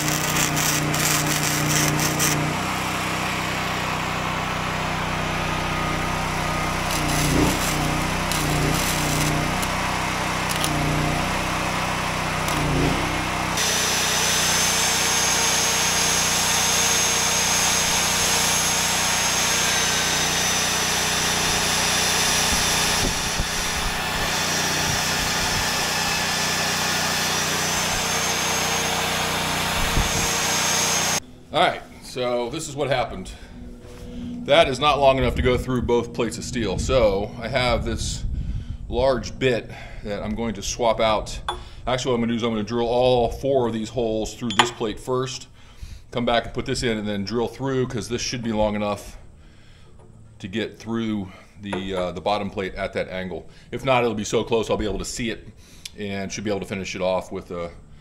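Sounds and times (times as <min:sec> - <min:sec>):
arc welding crackling: 0:00.0 - 0:03.5, 0:05.5 - 0:31.2
drill boring into steel: 0:00.0 - 0:31.2
high motor whine: 0:00.0 - 0:38.0.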